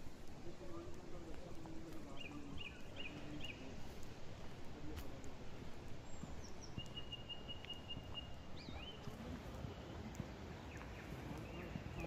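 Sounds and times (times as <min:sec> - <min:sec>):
footsteps on gravel: 0:01.2 - 0:12.0
birds whistling: 0:02.1 - 0:03.7, 0:06.0 - 0:09.2.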